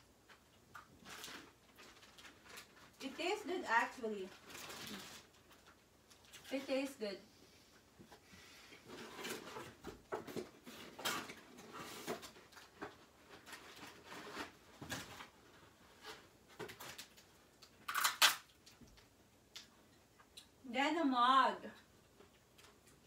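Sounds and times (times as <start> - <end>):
wrapping paper rustling and crinkling: 0.3 - 6.9, 8.9 - 18.5.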